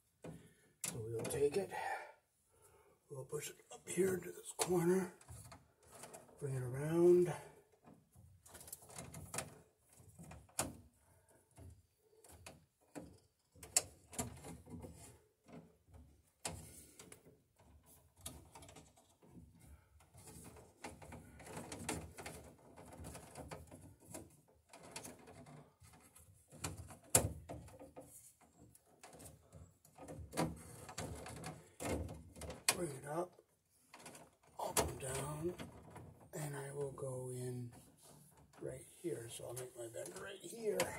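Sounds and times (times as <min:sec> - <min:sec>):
wire rustling and scraping: 0:04.7 - 0:07.2, 0:07.8 - 0:33.0.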